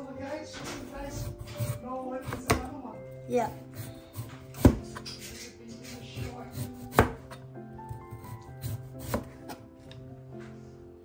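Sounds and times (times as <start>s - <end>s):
knife chopping on plastic board: 0.6s - 2.8s, 3.5s - 5.4s, 6.1s - 9.6s.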